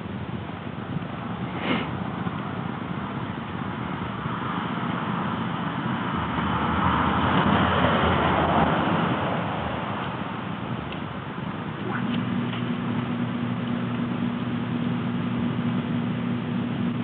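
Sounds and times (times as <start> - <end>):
road vehicle passing: 1.2 - 13.2.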